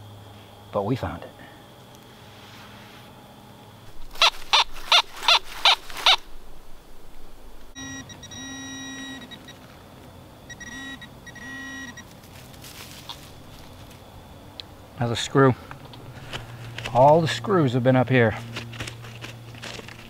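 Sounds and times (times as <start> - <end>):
metal detector target tone: 7.8 - 9.6, 10.5 - 12.1.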